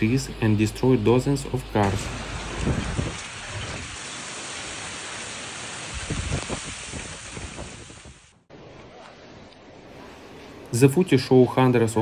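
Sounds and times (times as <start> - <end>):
heavy rain hissing: 0.0 - 8.5
deep gusty wind rumbles: 1.8 - 4.0, 5.8 - 8.4.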